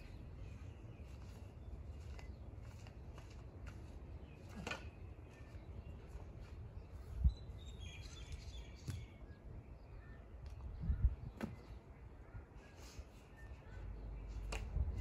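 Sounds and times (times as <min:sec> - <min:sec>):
faint bird chirps: 0:04.2 - 0:15.0.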